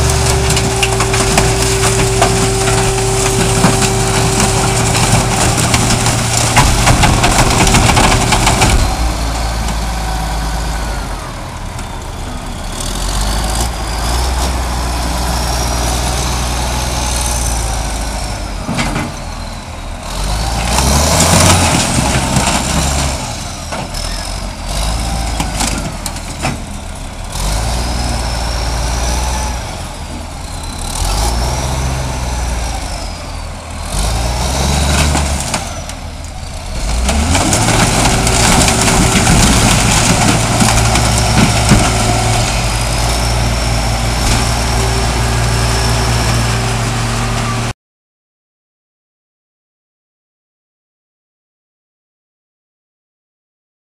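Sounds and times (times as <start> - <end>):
car being crushed: 0.0 - 9.3, 35.0 - 42.5
heavy engines revving: 0.0 - 47.8.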